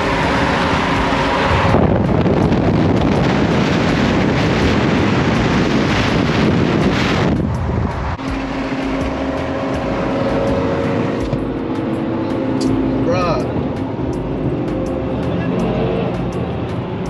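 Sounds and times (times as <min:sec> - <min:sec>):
vehicle wind and road noise: 0:00.0 - 0:17.0.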